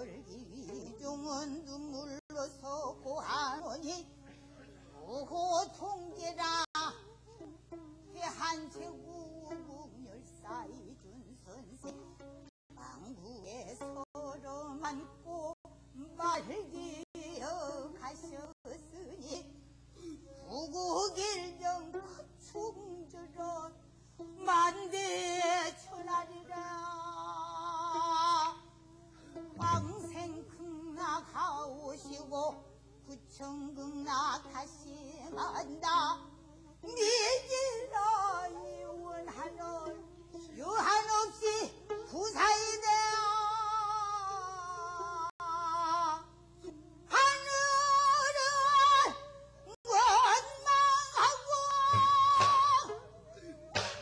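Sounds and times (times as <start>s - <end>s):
woman singing: 0.0s - 4.4s, 5.0s - 54.0s.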